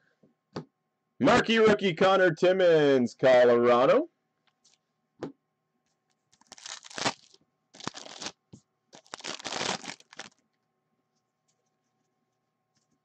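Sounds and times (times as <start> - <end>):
foil wrapper tearing and crinkling: 6.3 - 8.4, 9.0 - 10.4.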